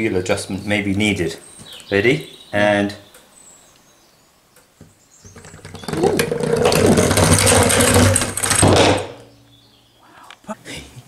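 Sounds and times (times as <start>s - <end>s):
wooden toy car rattling: 5.3s - 9.2s.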